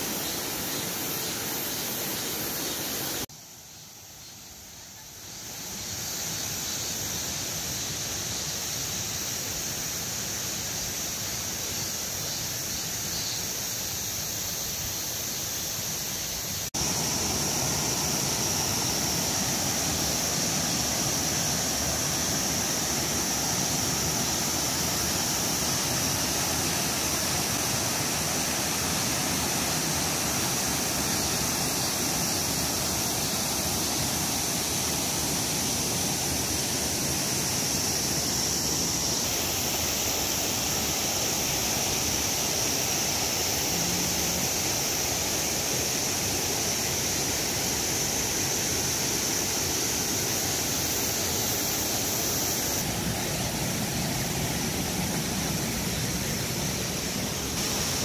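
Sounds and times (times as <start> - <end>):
cicadas droning: 0.0 - 58.0
stream rushing over rocks: 16.6 - 58.0.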